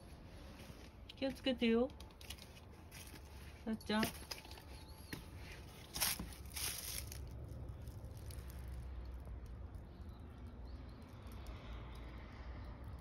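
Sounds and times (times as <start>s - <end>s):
steady low rumble: 0.0s - 13.0s
dry grass rustling: 2.2s - 10.0s.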